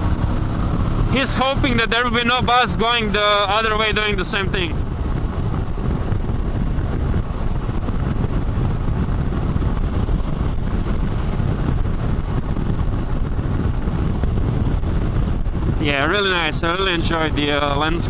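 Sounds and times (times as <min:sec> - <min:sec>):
motorcycle engine running: 0:00.0 - 0:18.0
road noise: 0:00.0 - 0:18.0
wind rush: 0:00.0 - 0:18.0.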